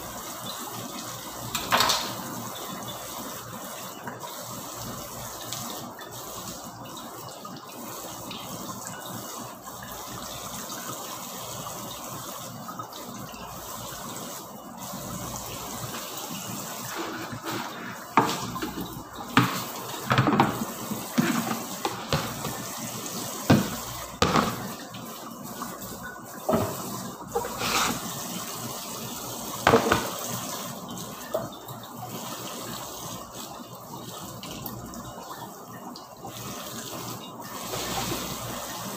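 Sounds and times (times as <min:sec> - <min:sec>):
dishes clattering against sink: 0:01.5 - 0:02.2, 0:16.9 - 0:22.6, 0:23.5 - 0:24.8, 0:26.5 - 0:28.0, 0:29.6 - 0:30.4
tap running into sink: 0:01.5 - 0:02.3, 0:15.9 - 0:25.0, 0:26.4 - 0:28.2, 0:29.6 - 0:30.6.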